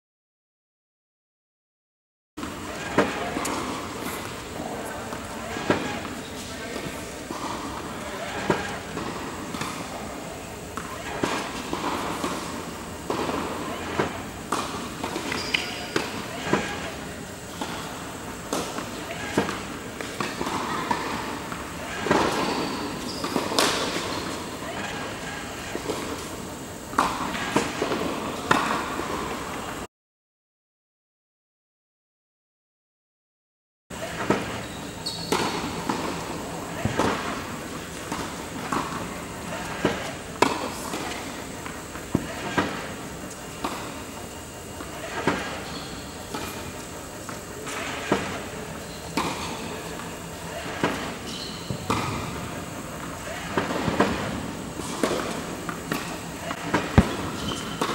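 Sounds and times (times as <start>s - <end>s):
tennis balls bouncing on court: 2.4s - 16.9s, 17.5s - 25.0s, 26.9s - 29.4s, 34.0s - 44.1s, 44.8s - 57.9s
tennis balls struck by racquets: 2.4s - 25.0s, 34.0s - 45.6s, 46.2s - 57.9s.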